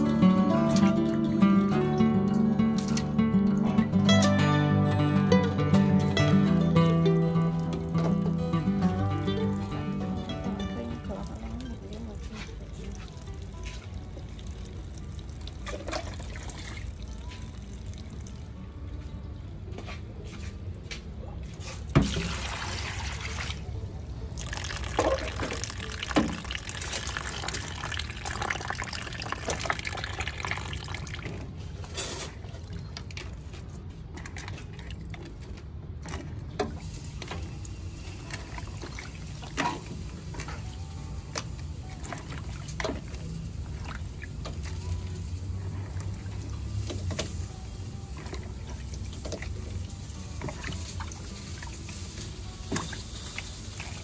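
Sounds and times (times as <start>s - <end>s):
tap water splashing: 6.2s - 18.5s, 21.9s - 23.6s, 24.4s - 31.5s, 34.2s - 47.5s, 48.2s - 54.0s.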